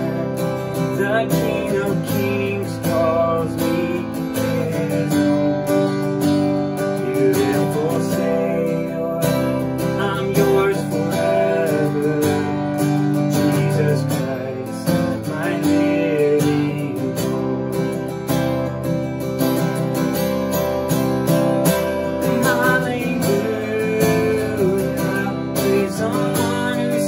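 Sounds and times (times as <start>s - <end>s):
man singing: 0.0s - 18.2s, 21.6s - 27.0s
acoustic guitar strumming: 0.0s - 27.0s.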